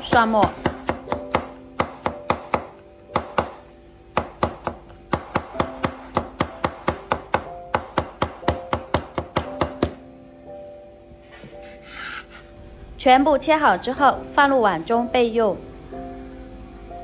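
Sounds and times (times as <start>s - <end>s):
cleaver chopping on cutting board: 0.1s - 3.6s, 4.2s - 10.0s.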